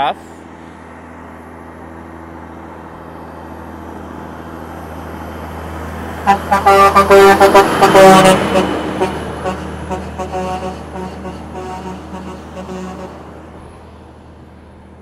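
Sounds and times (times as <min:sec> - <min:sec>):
heavy truck engine drone: 0:00.0 - 0:15.0
vehicle horn toots: 0:06.3 - 0:13.2.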